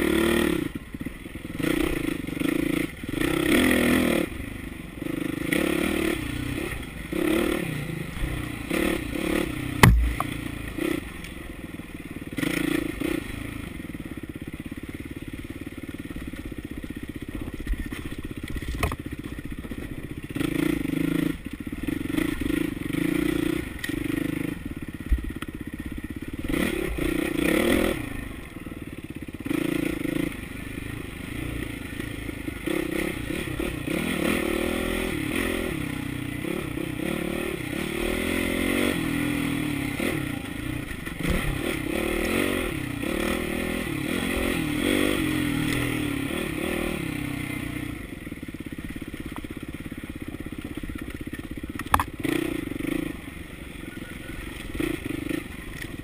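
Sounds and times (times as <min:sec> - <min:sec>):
dirt bike engine revving: 0:00.0 - 0:14.6, 0:19.8 - 0:25.0, 0:25.7 - 0:49.1, 0:50.3 - 0:55.8
sharp knock: 0:09.8 - 0:10.3.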